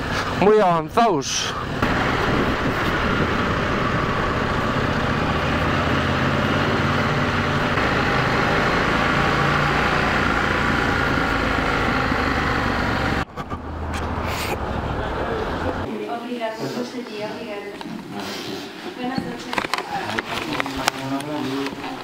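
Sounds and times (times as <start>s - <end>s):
wind noise: 1.5s - 7.8s
motorcycle engine running: 1.7s - 15.9s.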